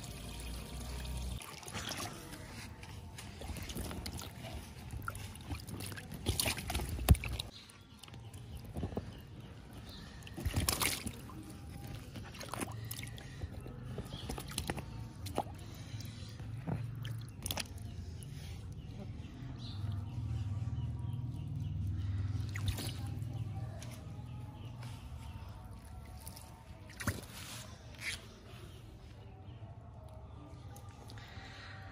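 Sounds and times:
water sloshing and splashing: 0:00.0 - 0:18.8, 0:21.5 - 0:24.3, 0:25.0 - 0:27.7.

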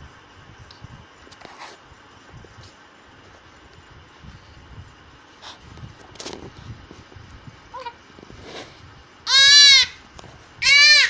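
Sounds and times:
baby squeaking: 0:09.3 - 0:10.0, 0:10.6 - 0:11.0.

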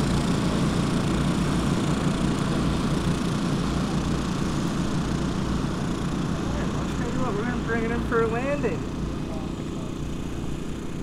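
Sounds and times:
model plane motor droning: 0:00.0 - 0:11.0.

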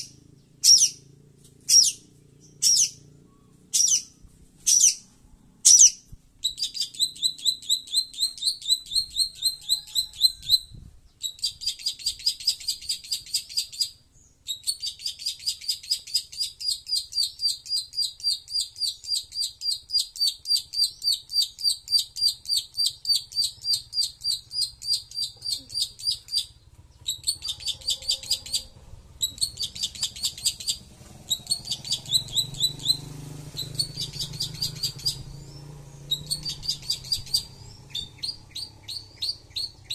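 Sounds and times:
shrike calling shrill notes: 0:27.1 - 0:35.2.

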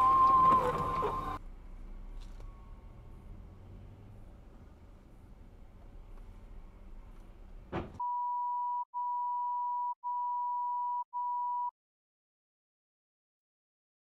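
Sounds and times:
car cabin road noise: 0:00.0 - 0:08.0
long electronic beeps: 0:08.0 - 0:11.7.

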